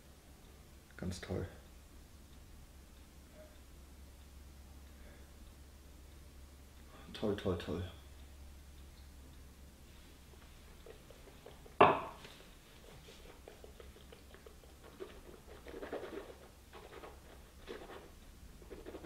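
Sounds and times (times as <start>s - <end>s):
glass knocking on table: 11.8s - 12.2s.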